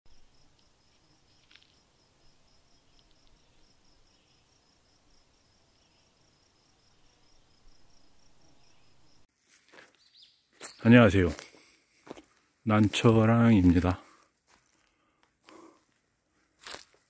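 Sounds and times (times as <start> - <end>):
faint insect chirping: 0.1 - 9.3.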